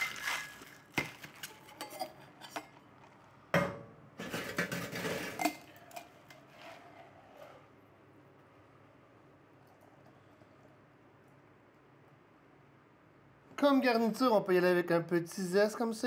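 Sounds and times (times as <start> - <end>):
ice rattling in cocktail shaker: 0.0 - 1.5
shaker tins clinking and knocking: 0.0 - 2.6.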